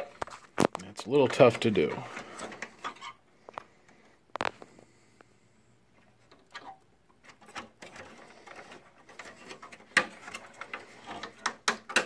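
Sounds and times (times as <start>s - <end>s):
circuit board scraping and rustling: 0.0s - 3.7s, 6.1s - 12.0s.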